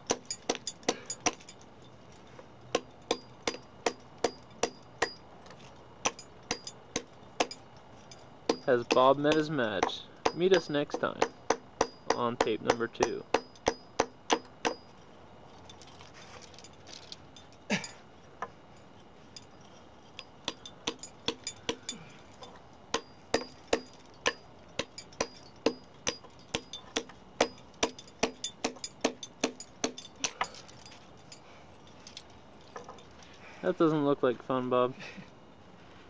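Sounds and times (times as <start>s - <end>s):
hammer striking steel piton: 8.5s - 14.9s, 22.9s - 30.1s.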